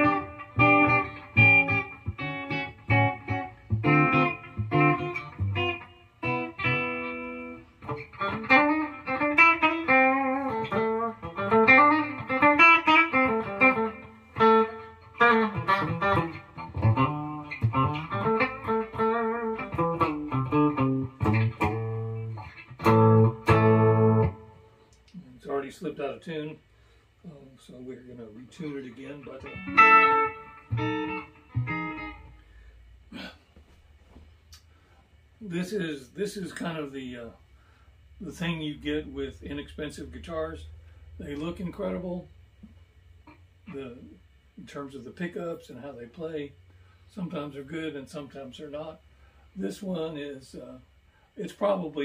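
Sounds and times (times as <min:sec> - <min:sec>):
electric guitar through amp: 0:00.0 - 0:25.3, 0:28.6 - 0:33.3.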